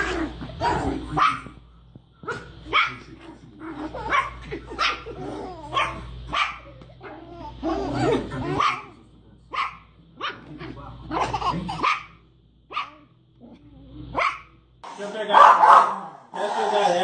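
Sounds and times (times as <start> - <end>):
small dog barking: 0.0 - 1.6, 2.2 - 3.1, 4.0 - 5.1, 5.7 - 10.5, 11.1 - 13.1, 14.1 - 14.6, 15.3 - 16.2.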